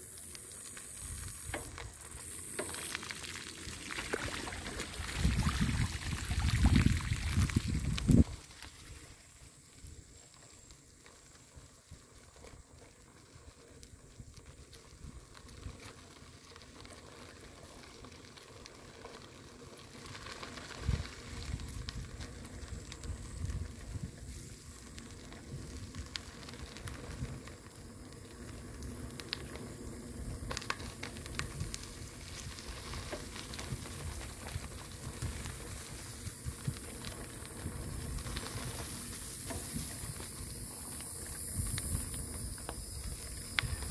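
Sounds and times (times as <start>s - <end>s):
bicycle tyres rolling on dirt: 0.0s - 43.9s
wind gusts on microphone: 4.6s - 8.4s, 31.2s - 43.9s.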